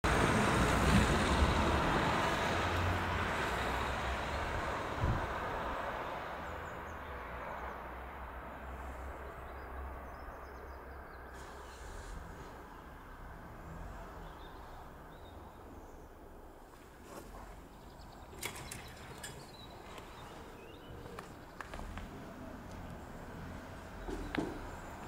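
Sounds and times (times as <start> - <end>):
car driving past: 0.1 - 10.4.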